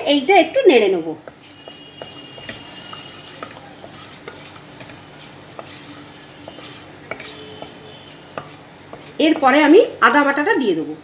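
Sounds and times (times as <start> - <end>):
spices sizzling in oil: 0.0 - 11.0
wooden spatula knocking pan: 1.2 - 9.6.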